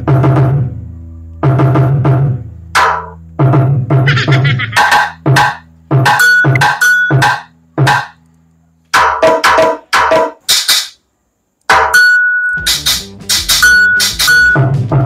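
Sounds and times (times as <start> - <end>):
electronic drum hits: 1.5 - 8.2, 11.7 - 15.0.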